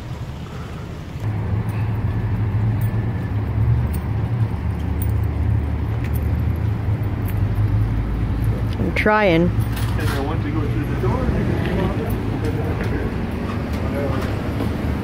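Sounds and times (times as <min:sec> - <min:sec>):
vehicle engine idling: 0:00.0 - 0:15.0
faint clicks and jingles: 0:01.2 - 0:11.2.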